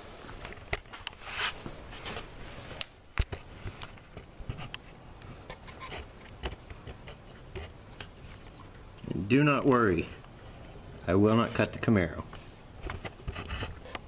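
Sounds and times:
camera handling rubbing and scraping: 0.4s - 8.4s, 12.3s - 14.0s.

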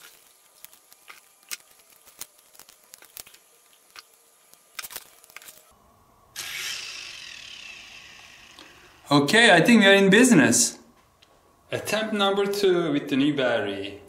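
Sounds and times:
toy helicopter motors whining: 6.4s - 9.1s.

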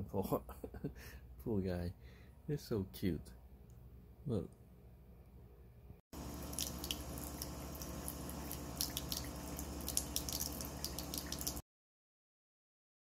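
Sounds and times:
faucet running into sink: 6.2s - 11.6s
water drips and splashes: 6.2s - 11.6s.

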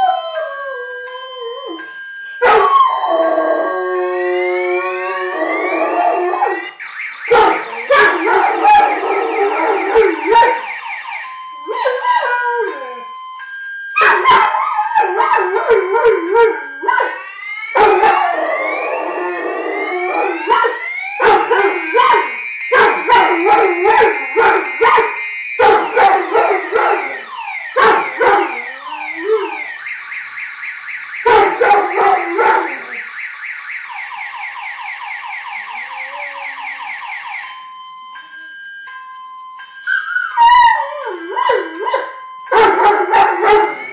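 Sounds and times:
dog howling: 0.0s - 1.8s, 2.4s - 6.7s, 17.7s - 22.3s, 27.8s - 29.6s
car alarm: 0.0s - 43.9s.

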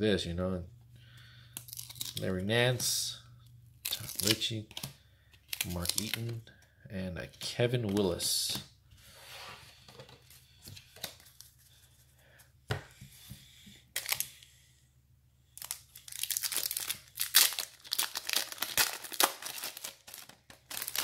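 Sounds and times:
foil wrapper crinkling: 5.4s - 6.4s, 15.6s - 21.0s.

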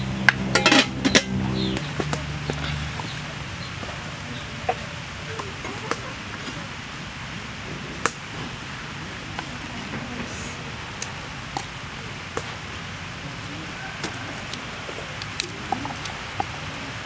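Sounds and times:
steady background hiss: 0.0s - 17.0s
garlic bulbs clicking and rustling: 14.0s - 16.6s.

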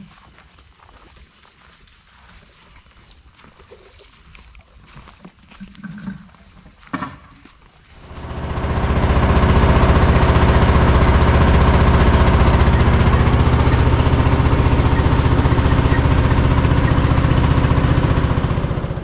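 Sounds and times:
small boat engine chugging: 8.0s - 19.0s.

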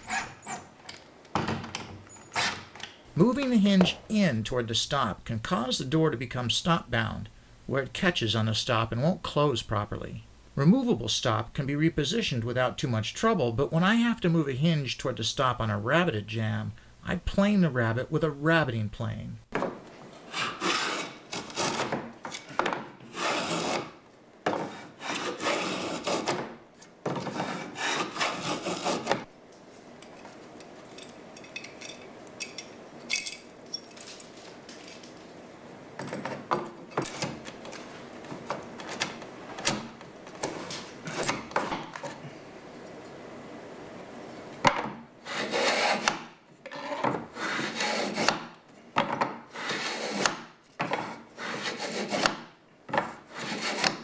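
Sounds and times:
plane shaving wood: 20.2s - 21.9s, 23.0s - 23.9s, 24.6s - 26.4s, 27.2s - 29.3s, 45.3s - 48.4s, 49.5s - 52.4s, 53.2s - 54.0s.

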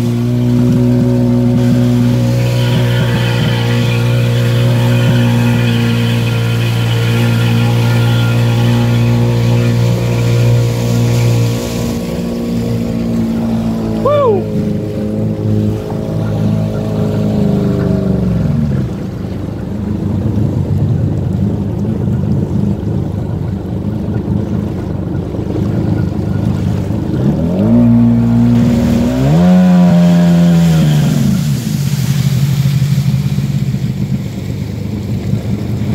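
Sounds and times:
motorboat engine running: 0.0s - 35.9s
water noise: 0.0s - 35.9s
wind: 0.0s - 35.9s.

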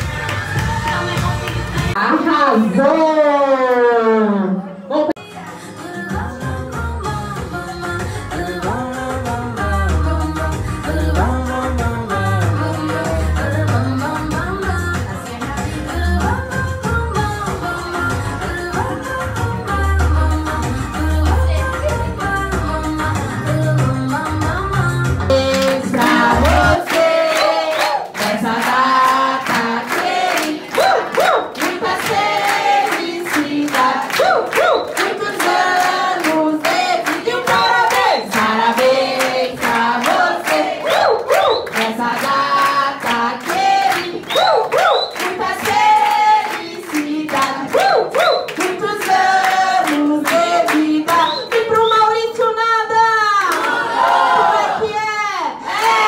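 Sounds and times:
people clapping: 0.0s - 2.0s, 25.3s - 52.0s, 53.2s - 54.8s, 55.7s - 56.0s
group singing a birthday song: 5.7s - 21.0s, 25.2s - 51.6s, 53.6s - 54.8s, 55.6s - 56.0s.

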